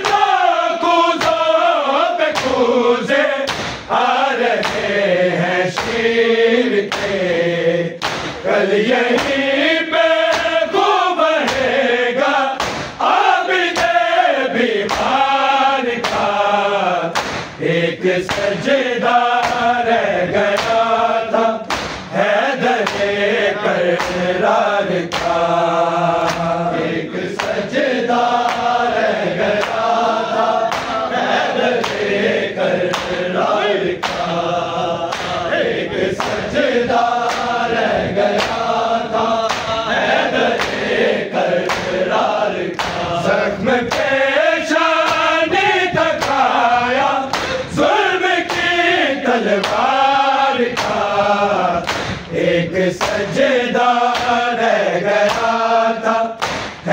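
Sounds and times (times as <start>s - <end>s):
men chanting in unison: 0.0s - 56.9s
chest-beating strikes: 8.0s - 8.5s, 12.6s - 13.0s, 17.1s - 17.6s, 21.6s - 22.1s.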